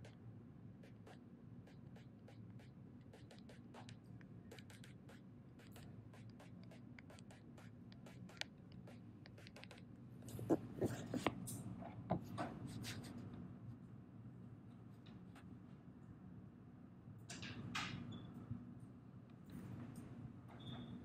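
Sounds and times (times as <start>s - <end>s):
stylus tapping and scratching: 0.8s - 11.5s, 12.1s - 13.1s.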